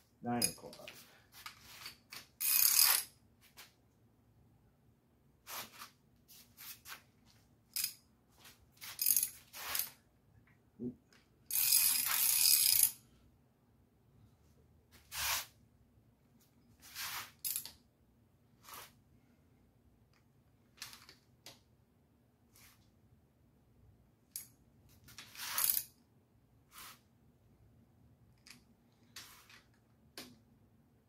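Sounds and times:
wrench clicking and clinking: 2.4s - 3.1s, 7.7s - 8.0s, 11.5s - 13.0s.

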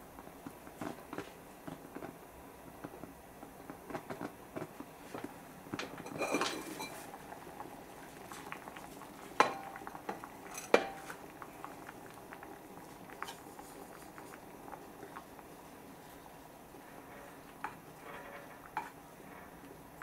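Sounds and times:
porridge bubbling: 0.0s - 20.0s
pottery clinking: 5.8s - 7.1s, 9.4s - 11.2s.

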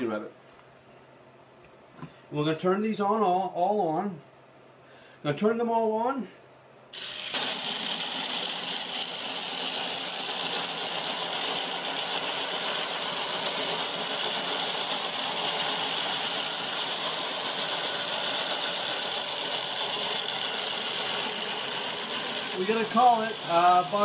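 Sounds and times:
toy car motors whirring: 7.0s - 24.0s.

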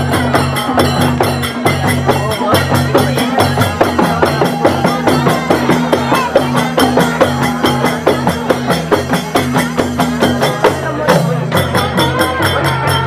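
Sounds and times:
fast percussion beat: 0.0s - 13.0s.

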